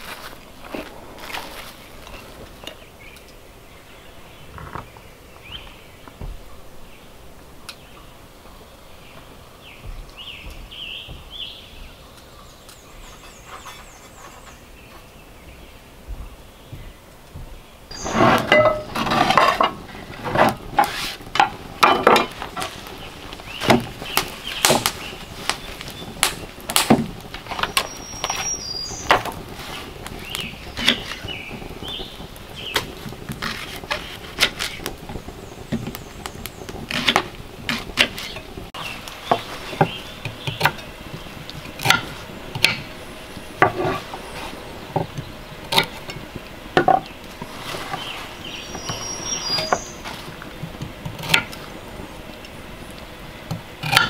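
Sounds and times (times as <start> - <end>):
kitchenware clinking: 18.4 - 19.7.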